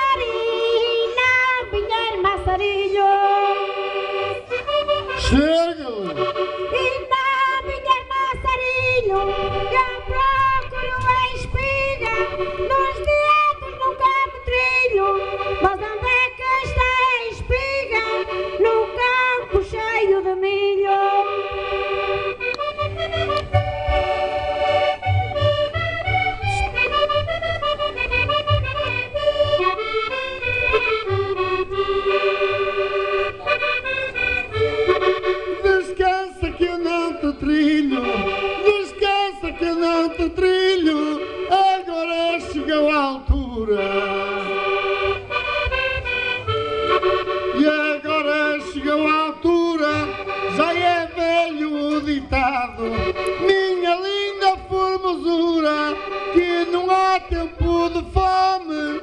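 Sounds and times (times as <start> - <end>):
lively accordion melody: 0.0 - 59.0
steady low beat: 21.4 - 40.6, 43.3 - 47.8.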